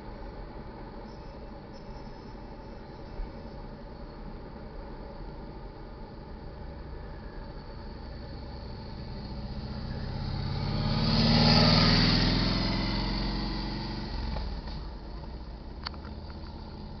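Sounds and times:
vehicle driving past: 7.1s - 15.0s.

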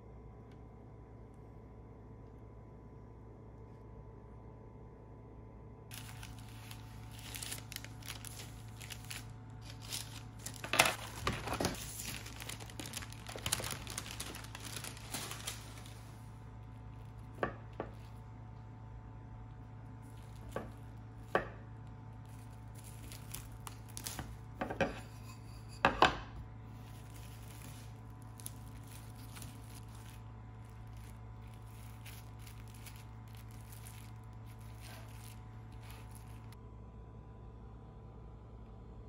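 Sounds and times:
plastic wrap crinkling: 5.9s - 18.2s, 20.0s - 24.8s, 26.6s - 36.6s.

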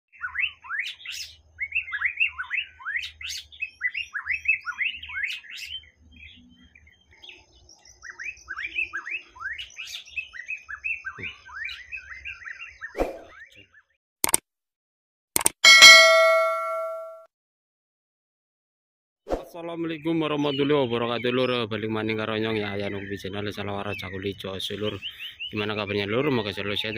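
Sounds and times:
bird singing whistled notes: 0.2s - 13.6s
sharp click: 14.2s - 14.4s, 15.4s - 17.2s.

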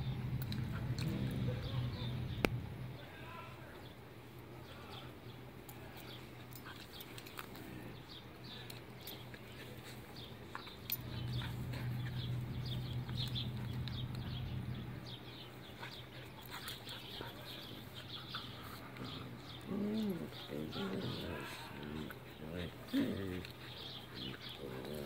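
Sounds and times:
birds chirping faintly: 0.0s - 25.0s
dogs growling while play-wrestling: 0.5s - 2.3s, 10.6s - 14.9s, 15.6s - 25.0s.

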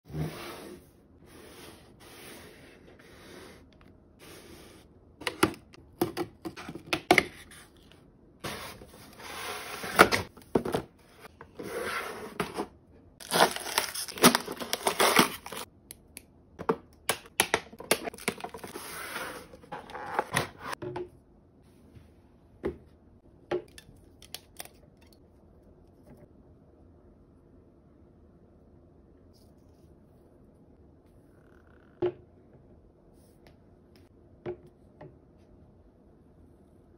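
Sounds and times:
cardboard tearing and crinkling: 13.2s - 15.7s.

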